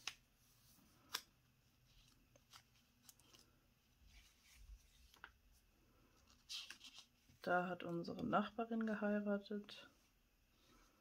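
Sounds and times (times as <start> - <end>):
paper pages rustling: 0.0 - 7.5.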